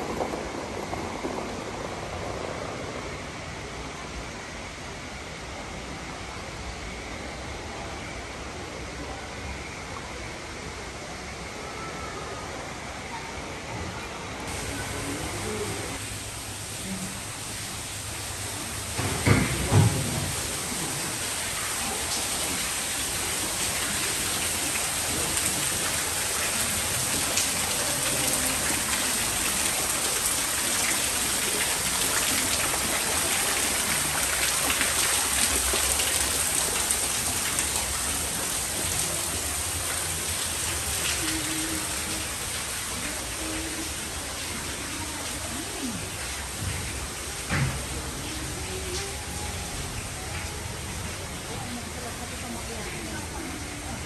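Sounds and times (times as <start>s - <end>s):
water falling onto foliage: 14.5s - 53.9s.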